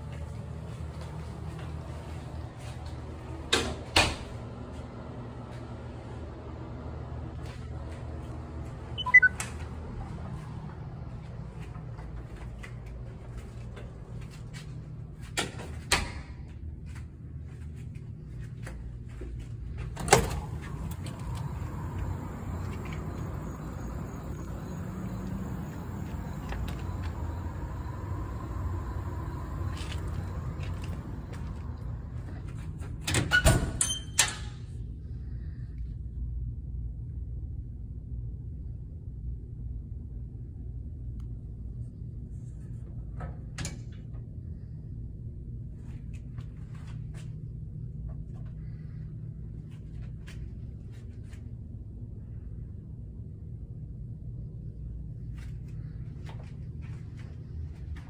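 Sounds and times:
low room hum: 0:00.0 - 0:58.0
outdoor background hiss: 0:20.1 - 0:32.4.

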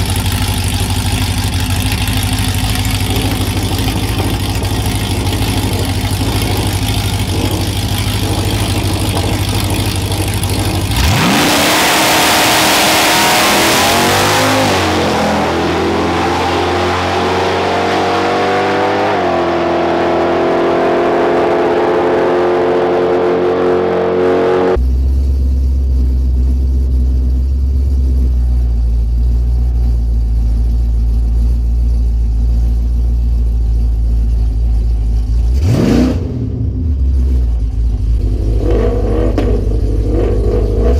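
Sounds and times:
low engine rumble: 0:00.0 - 0:19.3, 0:20.1 - 0:40.9
pickup truck engine revving: 0:00.0 - 0:24.9, 0:35.4 - 0:40.9.

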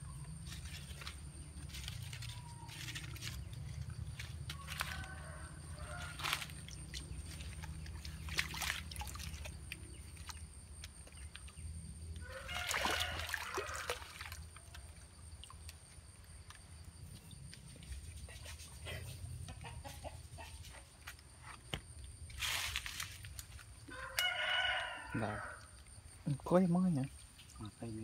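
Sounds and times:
fish splashing in water: 0:00.4 - 0:16.4.

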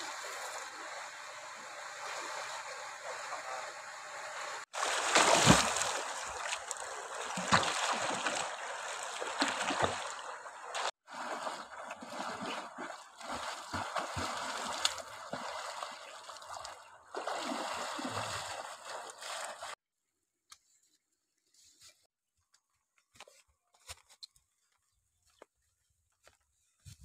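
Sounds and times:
water splashing from swimming: 0:00.0 - 0:19.8.

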